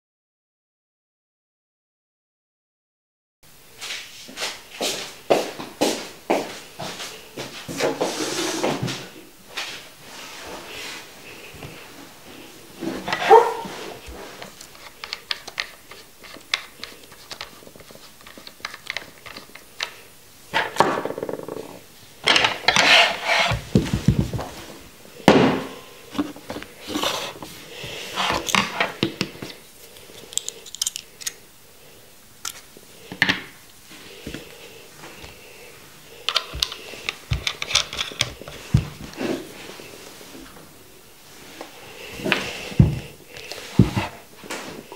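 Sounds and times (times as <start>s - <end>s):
small metal parts clicking: 30.2s - 31.4s.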